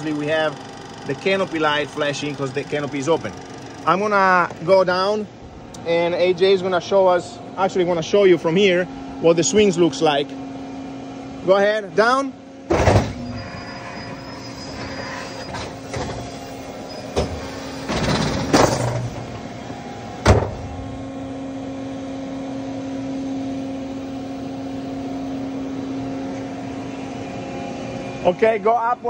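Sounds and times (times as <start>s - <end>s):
hydraulic rushing noise: 0.0s - 4.8s, 12.7s - 21.3s
steady hum: 0.0s - 29.0s.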